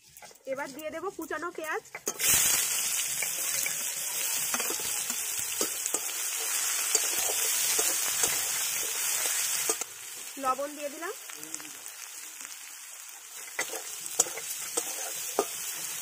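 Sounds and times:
metal spatula scraping pan: 0.0 - 9.8, 13.4 - 16.0
onions sizzling in oil: 0.0 - 16.0.

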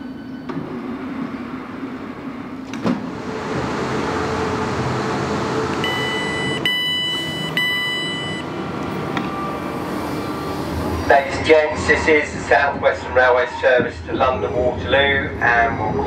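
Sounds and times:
electric train running noise: 0.0 - 16.0
train door clunking open: 2.6 - 4.0
door alert two-tone beeps: 5.8 - 8.5.

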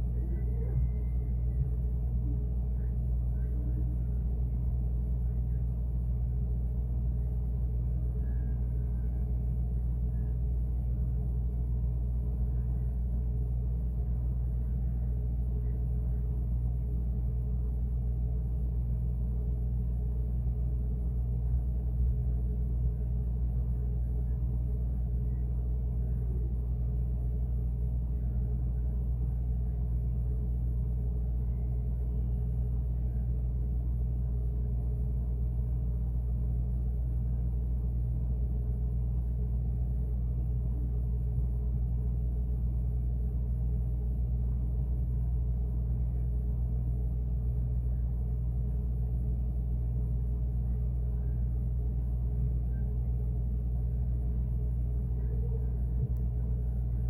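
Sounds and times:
refrigerator humming: 0.0 - 57.0.

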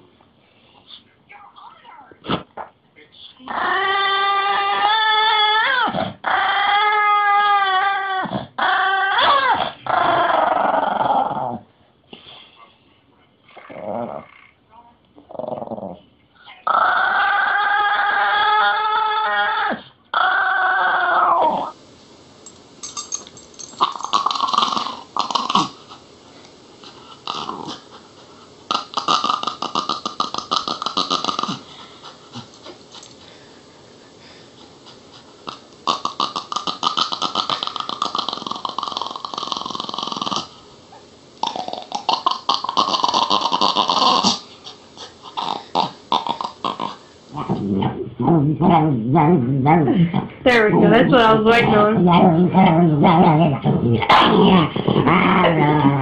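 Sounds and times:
small dog growling: 3.5 - 11.7, 13.5 - 14.6, 15.2 - 21.8, 23.0 - 26.0, 26.8 - 33.0, 35.4 - 40.6, 41.4 - 56.0.

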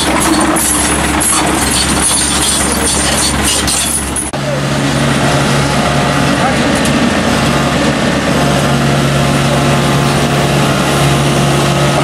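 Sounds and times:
excavator diesel engine clattering: 0.0 - 12.0
steady engine hum with low drone: 0.0 - 12.0.

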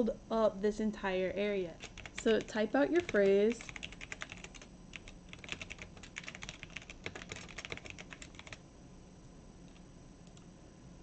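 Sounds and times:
typing on computer keyboard: 1.8 - 8.6.

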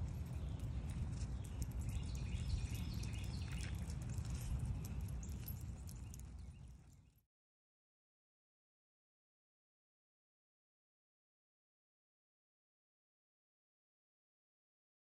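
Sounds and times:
light scattered ticks: 0.0 - 7.2
wind rumble on microphone: 0.0 - 7.2.

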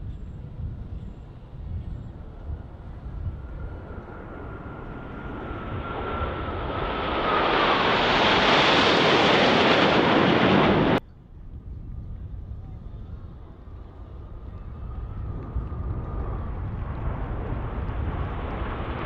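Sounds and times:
jet engines flying past: 0.0 - 19.0
thin jet whine: 3.4 - 11.0.

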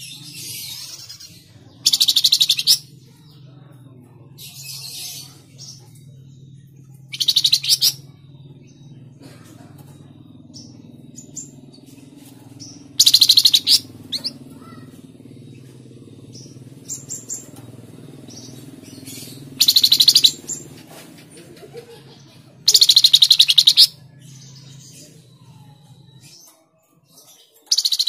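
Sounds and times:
songbird singing fast high notes: 19.6 - 20.4.

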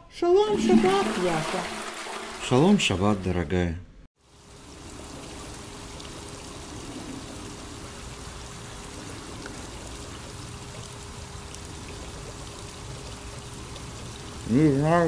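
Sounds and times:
running water rushing: 0.5 - 3.5, 4.2 - 15.0
faint steady hum: 4.3 - 14.8.

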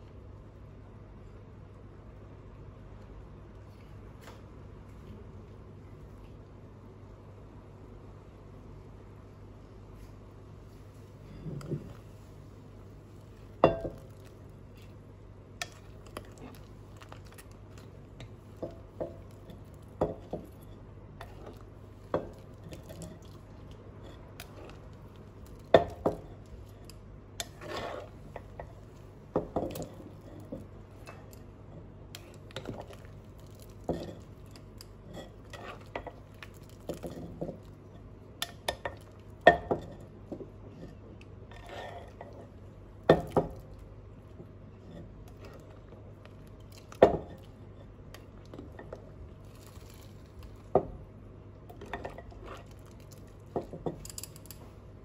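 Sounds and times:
steady low hum: 0.0 - 55.0
ladle scraping a pot: 27.4 - 28.7, 35.0 - 36.0.

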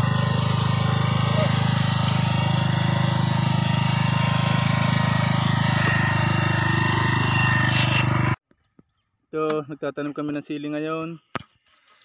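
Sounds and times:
tiller engine running: 0.0 - 8.4.

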